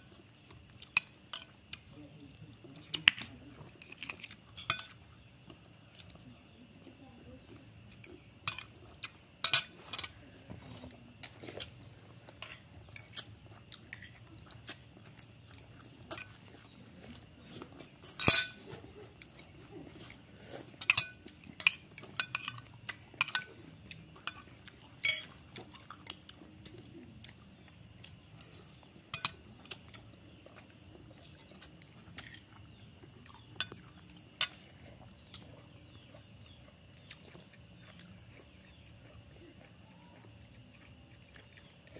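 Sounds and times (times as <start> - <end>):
plate clinking: 9.4 - 10.2, 18.2 - 18.6, 25.0 - 25.3.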